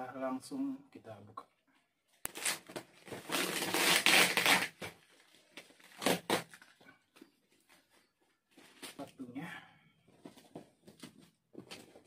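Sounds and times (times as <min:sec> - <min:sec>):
packing tape ripping: 0:02.3 - 0:06.8
plastic wrap crinkling: 0:02.3 - 0:08.0.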